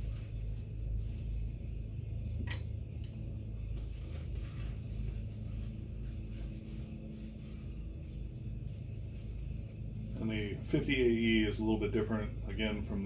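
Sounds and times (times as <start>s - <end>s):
paper towel rustling: 0.0s - 2.0s, 3.3s - 11.4s
steady low hum: 0.0s - 13.0s.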